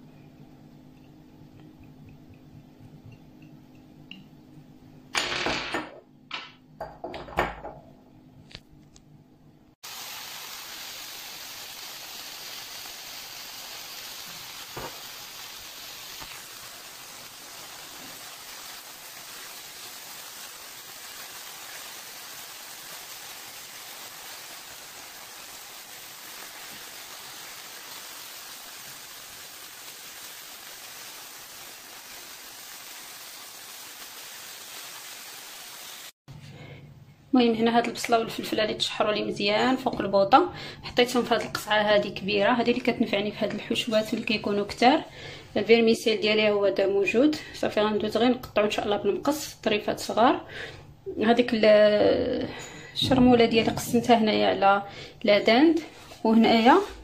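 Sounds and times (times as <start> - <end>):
vegetables sizzling in a pan: 9.8 - 36.2, 53.9 - 57.0.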